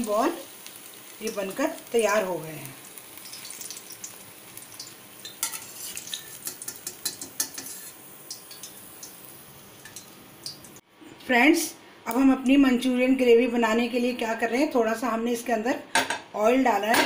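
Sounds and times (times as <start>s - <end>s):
hot oil sizzling: 0.0s - 10.8s.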